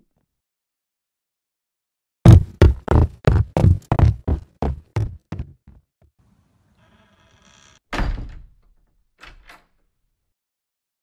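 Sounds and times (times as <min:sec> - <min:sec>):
heavy thud: 0:02.3 - 0:04.2.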